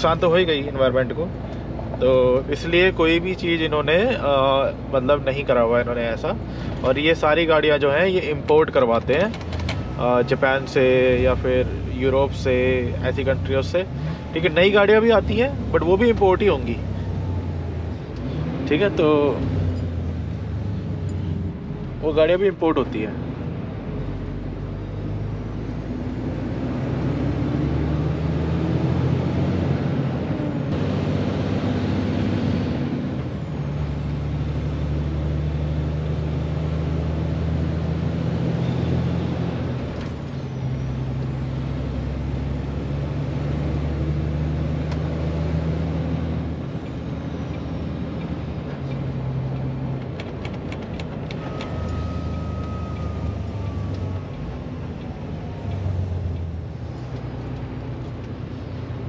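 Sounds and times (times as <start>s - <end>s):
truck diesel engine: 0.0s - 59.0s
faint high whistle: 51.4s - 53.9s.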